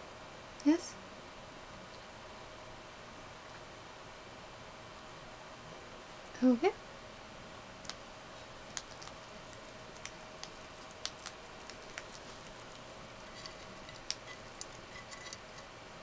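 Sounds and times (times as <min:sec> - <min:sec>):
hedgehog chewing and licking: 0:08.6 - 0:15.7.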